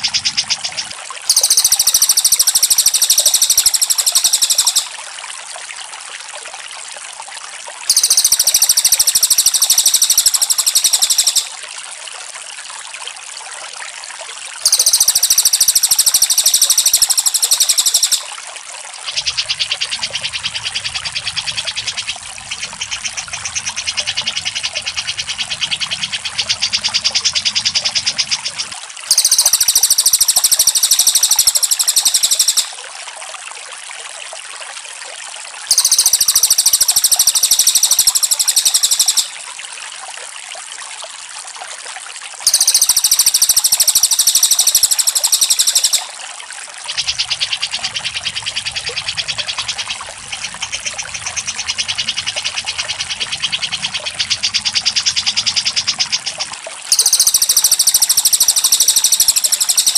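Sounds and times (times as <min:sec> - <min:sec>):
high buzzing bird trills: 0:00.0 - 0:05.0, 0:07.9 - 0:11.5, 0:14.6 - 0:18.3, 0:29.1 - 0:32.8, 0:35.7 - 0:39.4, 0:42.5 - 0:46.1, 0:56.9 - 0:59.9
lower rattling bird trill: 0:00.0 - 0:05.0, 0:07.9 - 0:11.5, 0:14.6 - 0:18.3, 0:19.1 - 0:32.8, 0:35.7 - 0:39.4, 0:42.5 - 0:46.2, 0:47.0 - 0:59.9
trickling water: 0:00.0 - 0:59.9.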